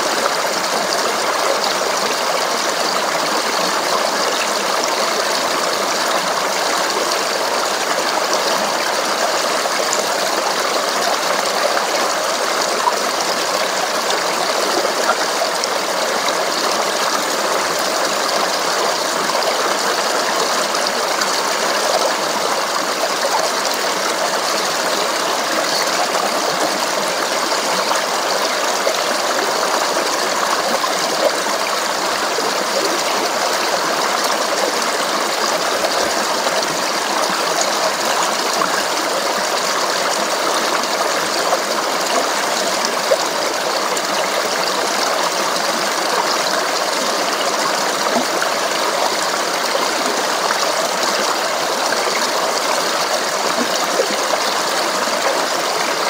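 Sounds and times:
stream water running: 0.0 - 56.0.

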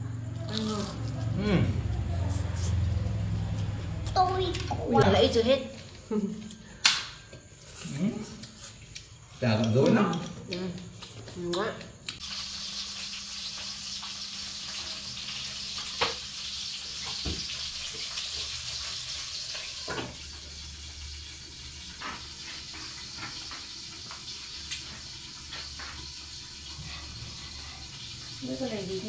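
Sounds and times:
oil sizzling in a frying pan: 12.2 - 29.0.

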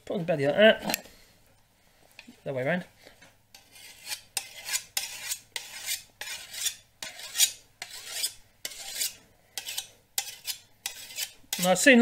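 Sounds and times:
stone scraping metal blade: 3.5 - 11.8.

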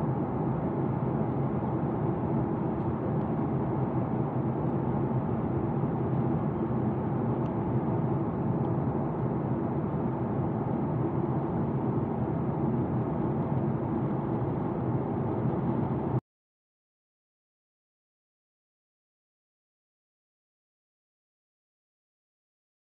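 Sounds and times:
jet airliner cabin drone: 0.0 - 16.2.

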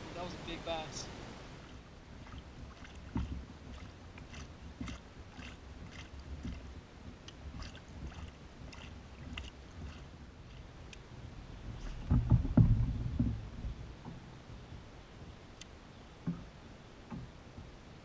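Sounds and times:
paddle strokes in water: 0.0 - 18.0
small splashes and drips: 1.6 - 11.0.

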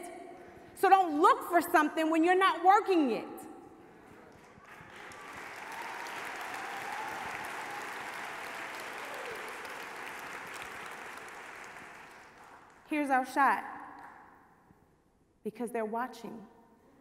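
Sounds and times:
audience applauding: 4.2 - 12.8.

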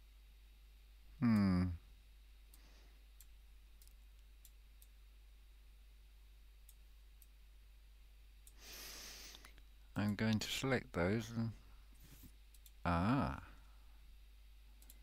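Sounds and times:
computer mouse clicks: 12.5 - 12.8, 14.8 - 15.0.

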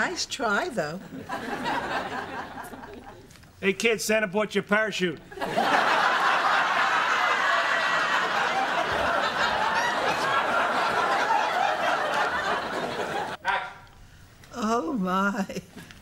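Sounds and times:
studio audience laughing: 1.0 - 3.3, 5.4 - 13.4.

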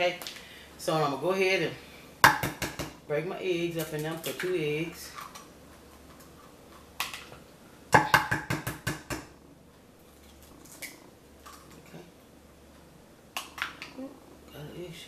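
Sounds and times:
egg tapping on glass dish: 2.2 - 3.0, 8.0 - 9.3.

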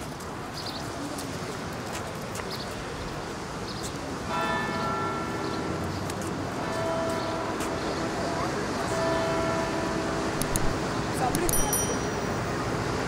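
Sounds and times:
outdoor background noise: 0.0 - 13.0
church bell ringing: 4.3 - 5.8, 6.6 - 10.9, 11.5 - 12.6.

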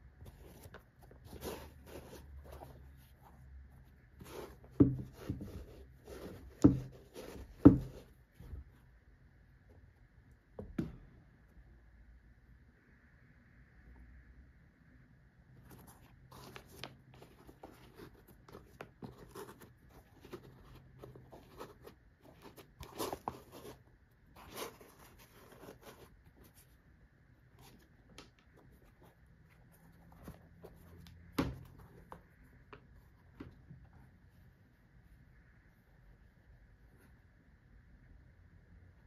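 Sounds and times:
shoe handling rustles and scrapes: 0.1 - 8.9, 15.6 - 26.8, 27.5 - 35.0.

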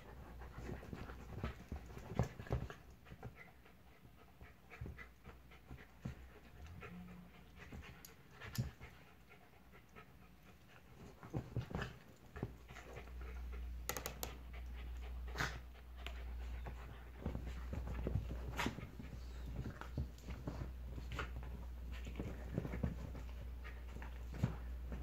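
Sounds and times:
dogs panting: 0.0 - 25.0
steady low hum: 0.0 - 25.0
dogs snapping and scuffling: 0.1 - 3.5, 10.5 - 25.0.

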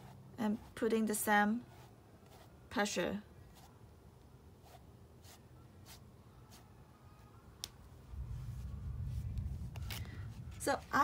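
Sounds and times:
brush swishing on canvas: 0.0 - 1.0
low rumble: 7.9 - 11.0.

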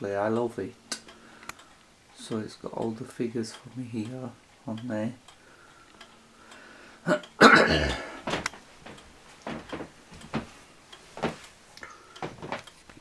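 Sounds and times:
person coughing loudly: 7.1 - 8.2
light clicks and knocks: 8.2 - 13.0.

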